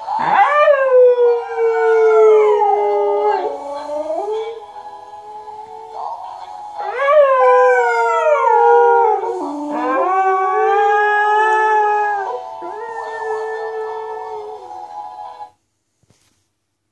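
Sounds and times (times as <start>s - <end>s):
dogs howling: 0.0s - 4.6s, 6.8s - 14.6s.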